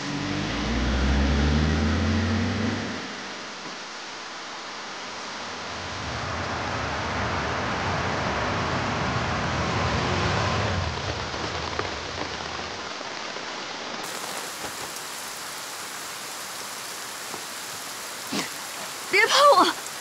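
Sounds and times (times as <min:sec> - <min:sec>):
car passing on wet road: 0:00.0 - 0:03.7, 0:05.4 - 0:13.1, 0:14.0 - 0:20.0
heavy rain: 0:00.0 - 0:20.0.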